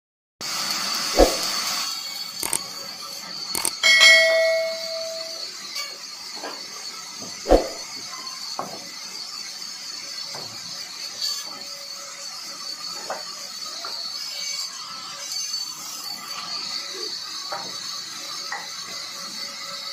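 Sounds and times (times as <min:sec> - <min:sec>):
bell ding sound effect: 0:03.8 - 0:05.5.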